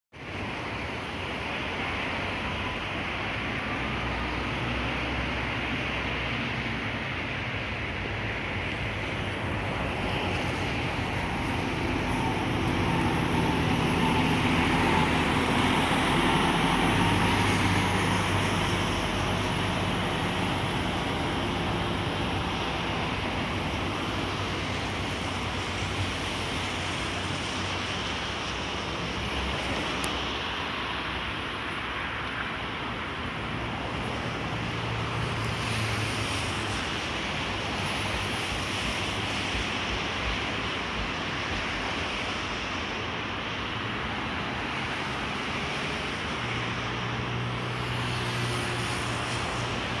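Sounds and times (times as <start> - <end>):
rushing outdoor noise: 0.1 - 50.0
diesel bus engine hum: 0.2 - 50.0
bus diesel engine running: 8.1 - 27.3.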